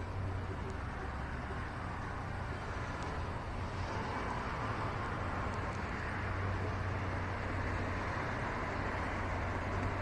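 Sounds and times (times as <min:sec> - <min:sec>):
city street traffic hum: 0:00.0 - 0:10.0.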